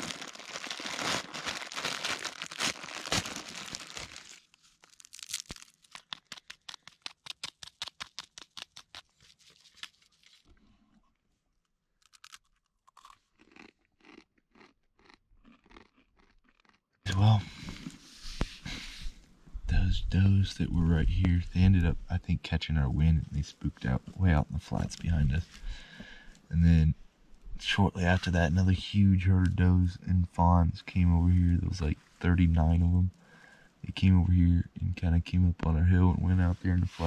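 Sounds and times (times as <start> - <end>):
dry noodles crackling: 0.0 - 10.5
plastic wrapper crinkling and tearing: 0.0 - 10.6
dry noodles being chewed: 12.0 - 16.8.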